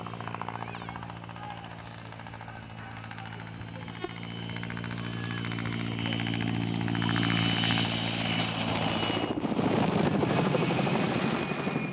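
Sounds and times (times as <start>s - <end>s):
helicopter rotor chopping: 0.0s - 11.9s
helicopter turbine whine: 0.0s - 11.9s.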